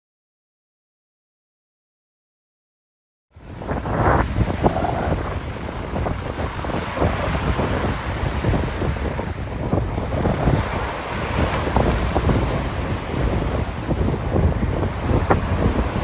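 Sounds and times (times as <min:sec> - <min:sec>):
choppy sea waves: 0:03.3 - 0:16.0
wind buffeting microphone: 0:03.4 - 0:16.0.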